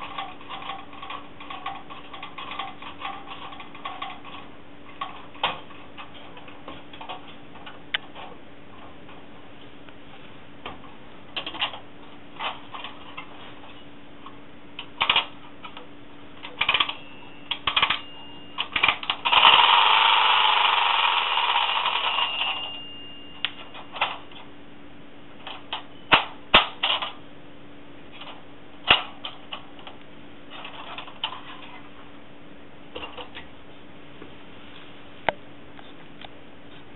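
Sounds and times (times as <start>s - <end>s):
clockwork mechanism whirring: 14.8s - 24.4s
tinny toy clicks and rattles: 18.6s - 22.6s.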